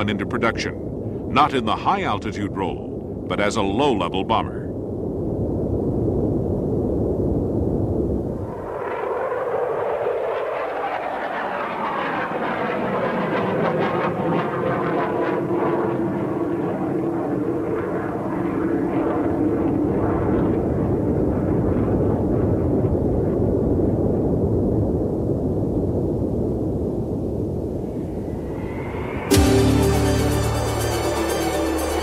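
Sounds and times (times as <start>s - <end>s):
jet aircraft passing: 8.1s - 23.4s, 27.6s - 32.0s.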